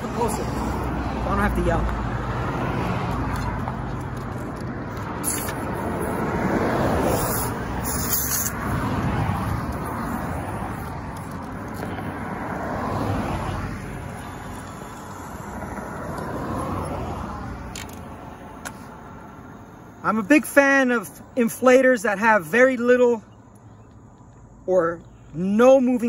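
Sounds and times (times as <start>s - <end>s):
cars passing: 0.0s - 26.0s.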